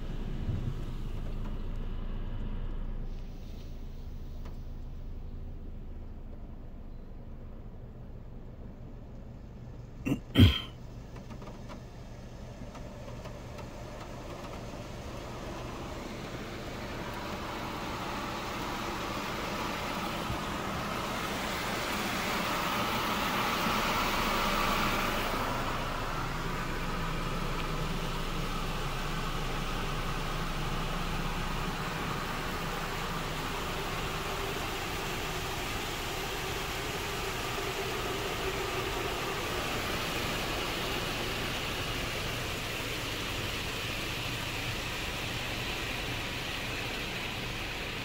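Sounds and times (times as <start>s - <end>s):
car wash dryer blowers rushing air: 12.2s - 48.0s.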